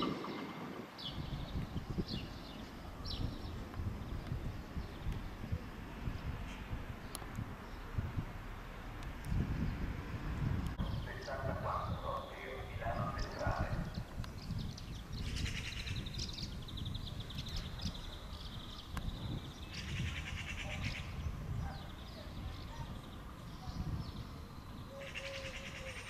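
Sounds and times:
electric train rumbling: 0.0 - 4.2.

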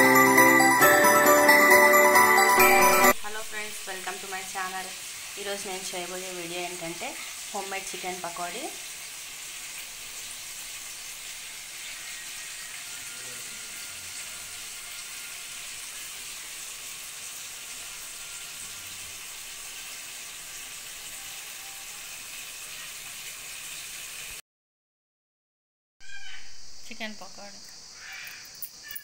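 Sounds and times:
chicken deep-frying in hot oil: 3.2 - 24.4.

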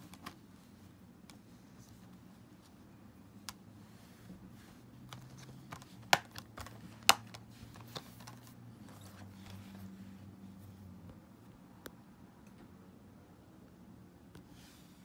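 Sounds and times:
plastic cases clicking: 5.1 - 9.2.

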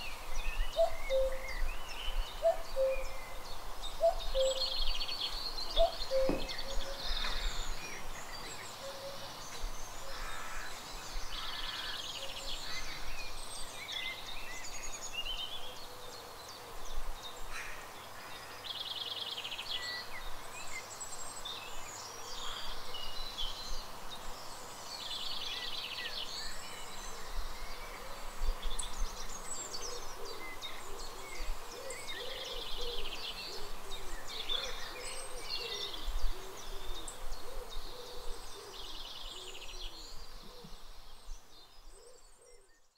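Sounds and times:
small birds chirping: 0.0 - 16.6.

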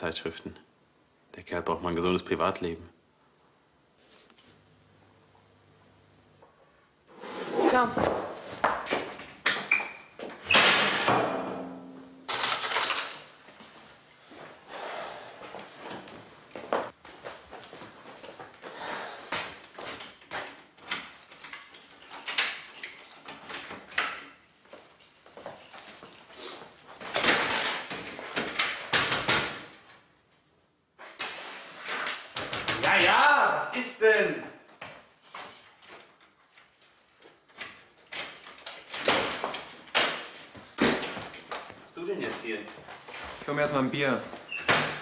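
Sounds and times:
door being opened: 8.8 - 11.2
keys jangling: 12.3 - 14.9, 20.8 - 23.7, 24.4 - 26.4, 37.5 - 40.0.

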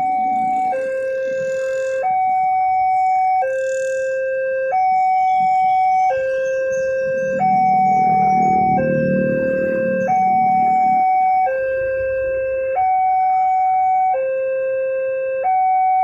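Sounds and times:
level crossing alarm two-tone: 0.0 - 16.0.

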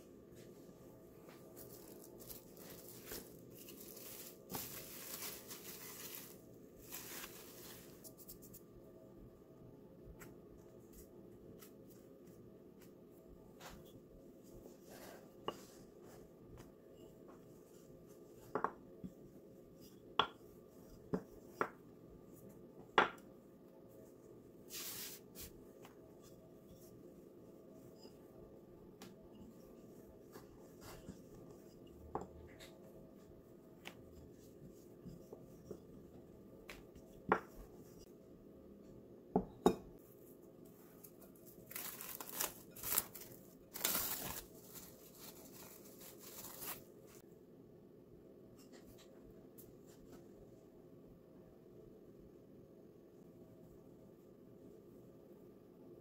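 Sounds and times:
rolling pin on wooden countertop: 14.8 - 23.3
cling film crinkling: 41.7 - 46.9.

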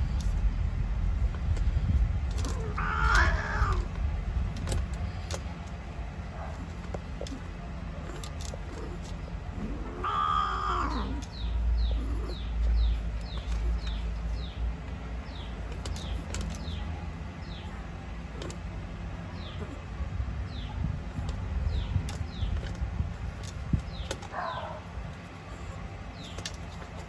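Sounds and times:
low rumble: 0.0 - 27.0
cat meowing: 2.5 - 3.9, 9.6 - 11.2.

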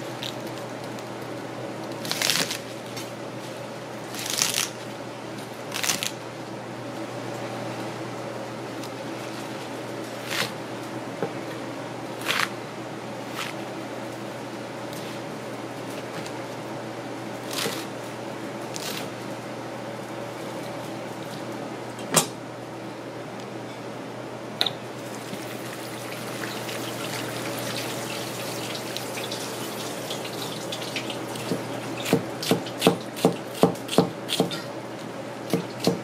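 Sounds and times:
tap water running: 25.0 - 32.1
knife chopping on cutting board: 31.4 - 34.7, 35.5 - 36.0.

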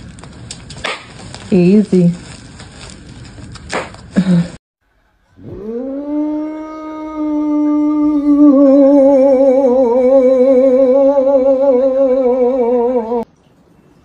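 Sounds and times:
dog howling: 5.4 - 13.2.

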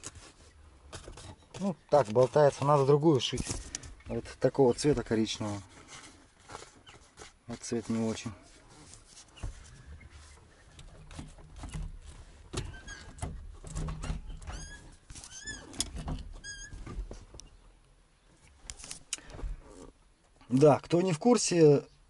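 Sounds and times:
short high-pitched squeaks: 12.6 - 13.2, 14.0 - 15.8, 16.4 - 16.9.

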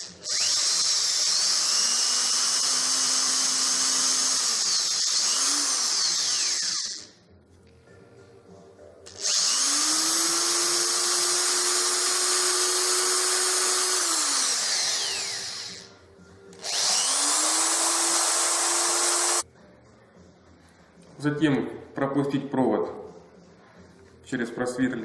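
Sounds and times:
small electric drill spinning: 0.0 - 7.2, 9.1 - 16.0, 16.6 - 19.4.

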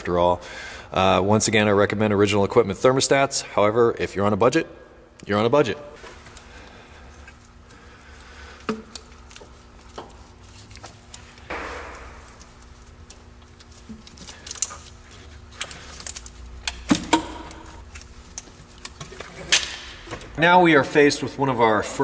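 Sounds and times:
low background hum: 0.0 - 22.0.

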